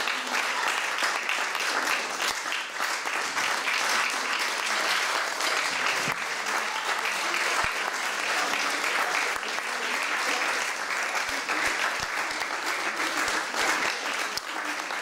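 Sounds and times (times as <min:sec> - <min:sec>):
audience clapping: 0:00.0 - 0:15.0.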